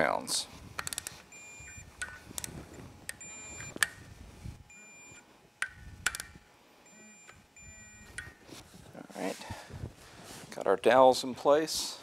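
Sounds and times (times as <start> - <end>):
ratchet clicks: 0.8 - 1.2, 5.6 - 6.4
double-toned beeps: 1.3 - 1.9, 3.2 - 3.8, 4.7 - 5.2, 6.9 - 8.4.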